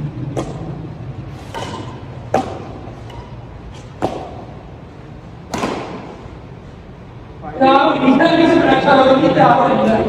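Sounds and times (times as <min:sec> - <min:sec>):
rackets hitting shuttlecock: 0:00.2 - 0:04.8, 0:05.4 - 0:06.4.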